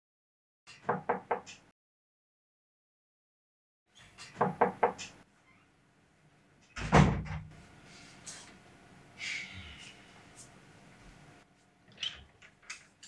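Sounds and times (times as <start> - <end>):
knocks on wooden door: 4.4 - 5.0
heavy door thud: 6.8 - 7.5.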